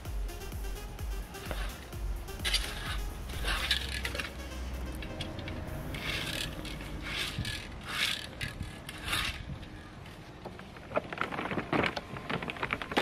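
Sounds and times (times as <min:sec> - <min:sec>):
rake scraping through grass: 0:02.4 - 0:04.4, 0:05.0 - 0:09.6.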